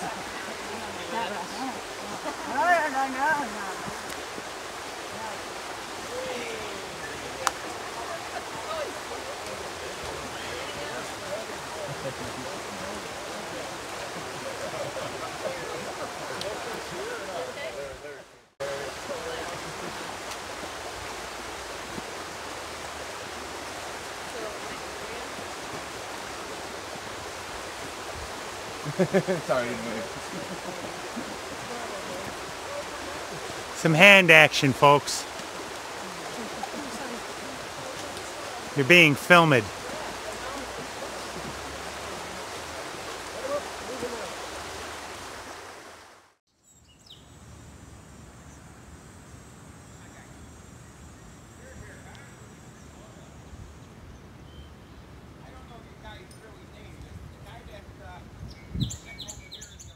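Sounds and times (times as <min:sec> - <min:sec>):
creek water rushing: 0:00.0 - 0:46.4.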